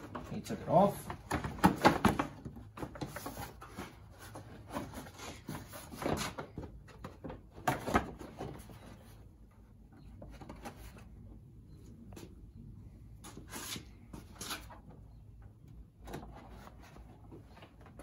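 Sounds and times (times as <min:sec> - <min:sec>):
plastic clatter and knocks: 0:01.1 - 0:03.6, 0:05.6 - 0:08.9.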